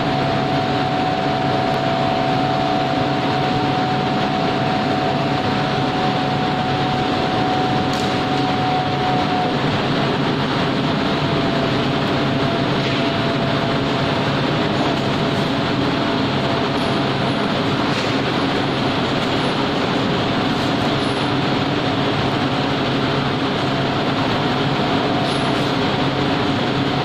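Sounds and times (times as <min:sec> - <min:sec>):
low hum: 0:00.0 - 0:25.3
loud machinery din: 0:00.0 - 0:27.0
thin steady whine: 0:00.0 - 0:27.0.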